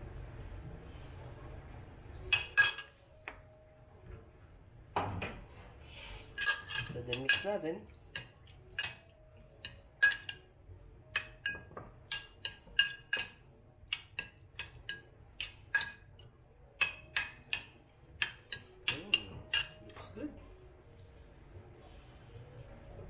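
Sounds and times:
metal spoon clinking ceramic bowl: 2.2 - 3.0, 6.4 - 10.5, 11.1 - 16.2, 16.8 - 20.1.

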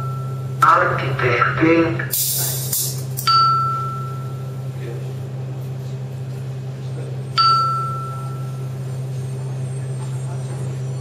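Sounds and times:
steady low hum: 0.0 - 11.0
chime tones: 7.4 - 8.7.

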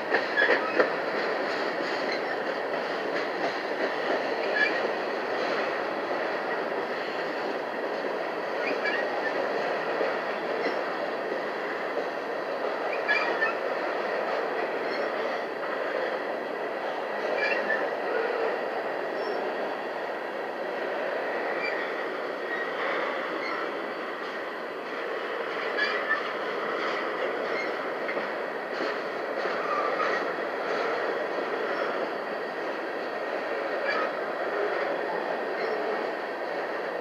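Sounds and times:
train wheel clicks: 0.0 - 16.2, 21.4 - 36.8
train wheels rumbling on rails: 0.0 - 37.0
high wheel squeaks: 8.5 - 9.1, 12.9 - 13.6, 25.6 - 26.3.

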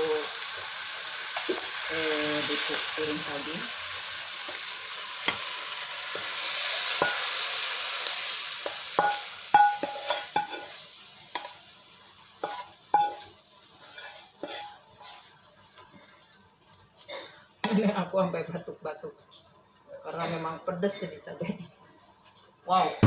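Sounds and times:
oil sizzling in a frying pan: 0.0 - 23.0
clinks and knocks on a pan: 8.6 - 10.7, 12.4 - 13.3.

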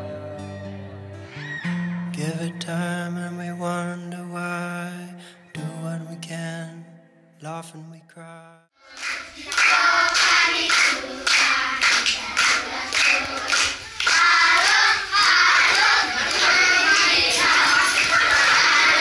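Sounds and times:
children shouting: 1.2 - 1.9, 9.0 - 19.0
children singing: 8.8 - 19.0
hands clapping in time: 8.9 - 19.0.

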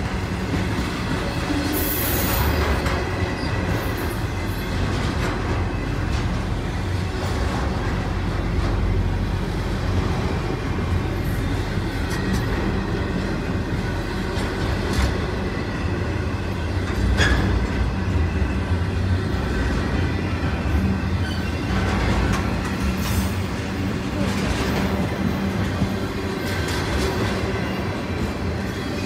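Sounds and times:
sharp clicks of train wheels: 0.0 - 8.9, 11.3 - 15.6, 19.6 - 29.0
train wheels rumbling on rails: 0.0 - 29.0.

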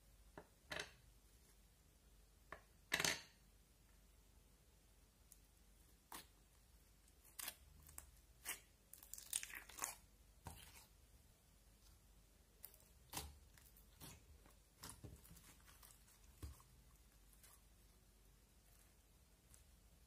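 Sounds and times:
sticky slime crackling: 7.1 - 11.0, 12.5 - 17.8.

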